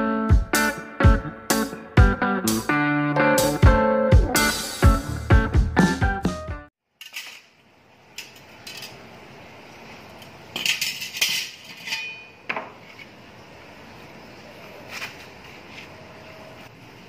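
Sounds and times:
steel plates clinking: 8.2s - 9.0s, 10.5s - 12.5s.

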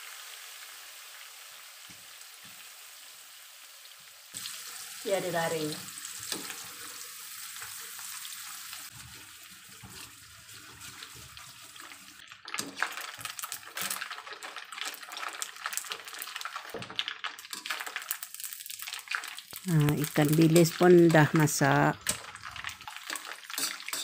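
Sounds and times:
fish deep-frying in hot oil: 0.0s - 24.0s
wire skimmer stirring in wok: 8.9s - 24.0s.

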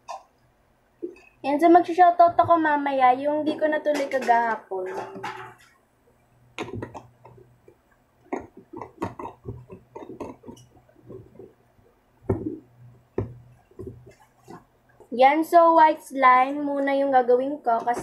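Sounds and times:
plastic bottle clicks and knocks: 6.5s - 11.6s, 12.2s - 14.6s.

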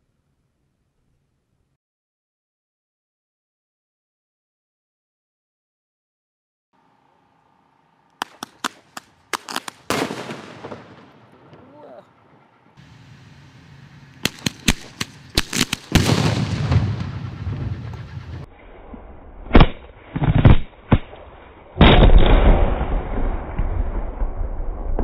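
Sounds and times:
firework loud blast: 8.2s - 11.6s, 14.2s - 18.5s, 21.8s - 25.0s
firework sharp cracks: 8.2s - 11.6s, 14.1s - 18.3s.

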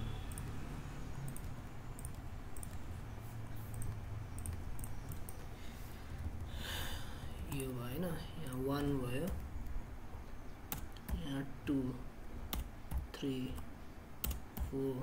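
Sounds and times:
steady low hum: 0.0s - 15.0s
keyboard clicks: 0.2s - 0.6s, 1.2s - 2.9s, 3.7s - 5.5s, 12.5s - 14.8s
computer mouse clicks: 0.3s - 0.6s, 1.2s - 5.5s.

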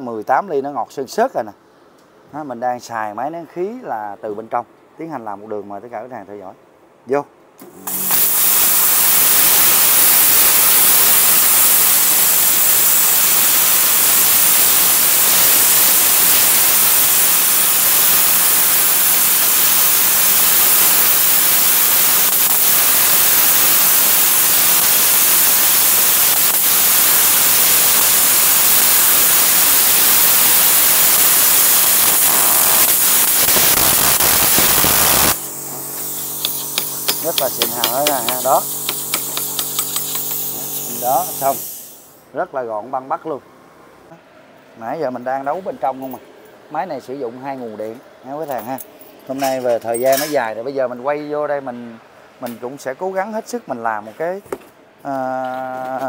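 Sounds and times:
plasma cutter hissing: 7.8s - 42.2s.

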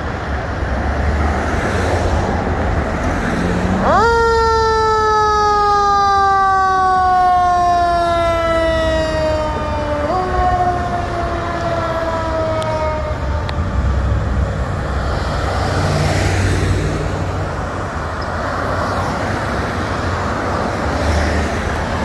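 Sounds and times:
traffic passing close by: 0.0s - 22.0s
fire engine siren winding down: 3.7s - 14.1s.

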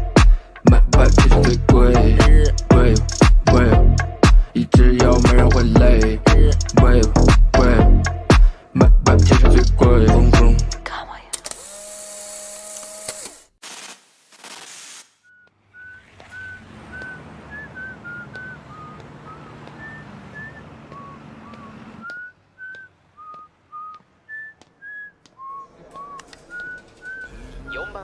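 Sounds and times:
person whistling a slow tune: 15.3s - 28.0s.

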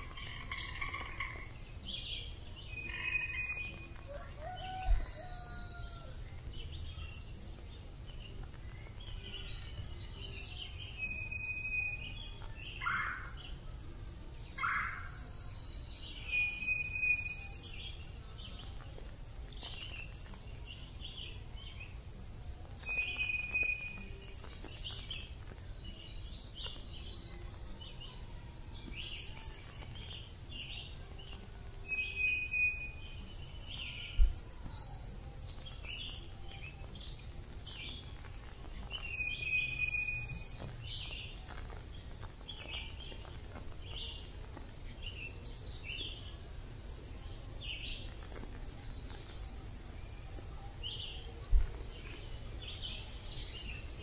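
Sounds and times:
birds chirping and trilling: 0.0s - 54.0s
whistled bird note: 10.9s - 12.3s.

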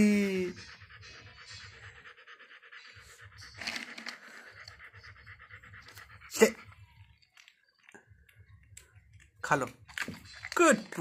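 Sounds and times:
dog panting: 0.2s - 8.7s.

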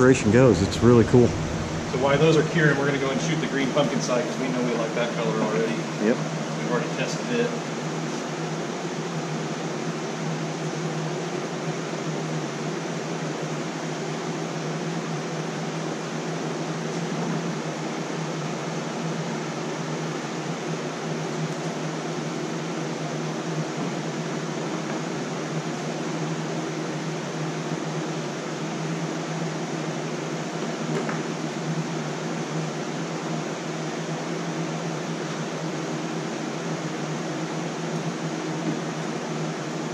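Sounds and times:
constant low hum: 0.0s - 8.2s
cooling fan whirring: 0.0s - 39.9s.

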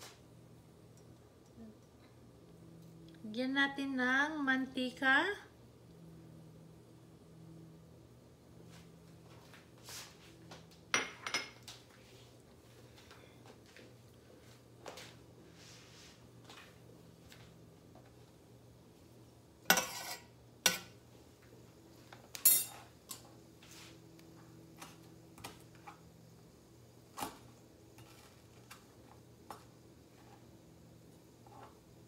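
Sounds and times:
low steady hum: 0.0s - 32.0s
cookware clattering: 11.0s - 11.6s, 19.7s - 20.9s, 22.4s - 22.9s.

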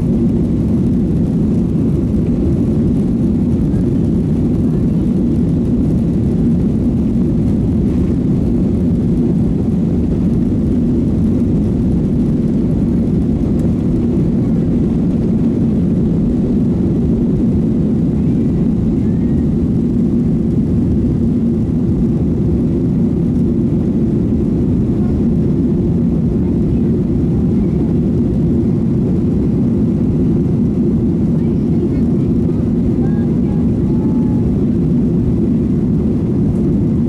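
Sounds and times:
jet engine cabin rumble: 0.0s - 37.0s.

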